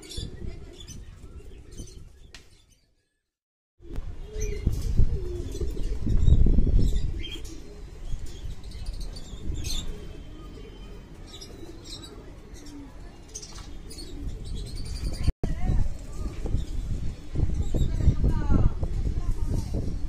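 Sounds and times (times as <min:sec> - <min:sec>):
pigeons cooing: 0:03.8 - 0:15.2.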